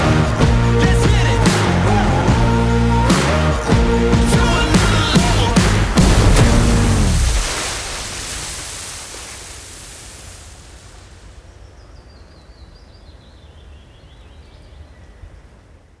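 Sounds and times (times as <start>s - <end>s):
low rumble: 5.3s - 8.3s
water splashing: 5.3s - 11.6s.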